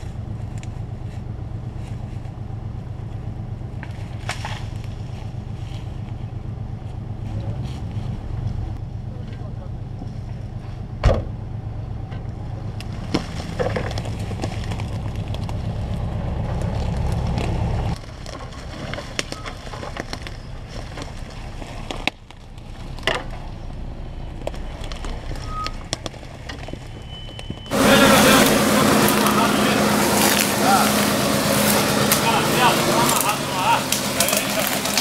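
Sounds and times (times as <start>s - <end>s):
car engine hum: 0.0s - 35.0s
twigs and brush snapping: 3.8s - 6.2s, 12.2s - 23.5s, 28.3s - 35.0s.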